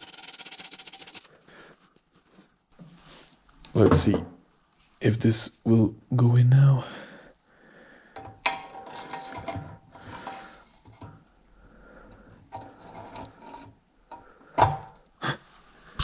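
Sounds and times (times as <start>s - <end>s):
metal-on-metal scraping and clicking: 8.2s - 11.2s, 12.1s - 14.3s.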